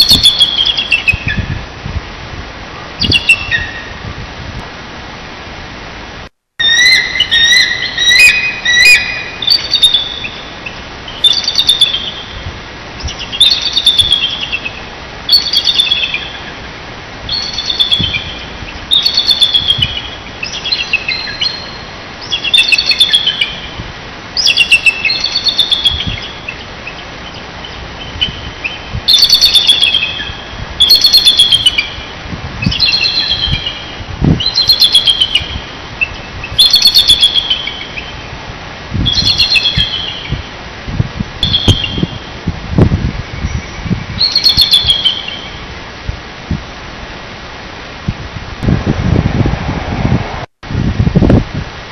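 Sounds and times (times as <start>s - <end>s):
eagles calling: 6.6s - 12.4s, 13.0s - 16.7s, 17.3s - 23.8s, 24.4s - 32.1s, 32.7s - 38.3s, 39.1s - 40.4s.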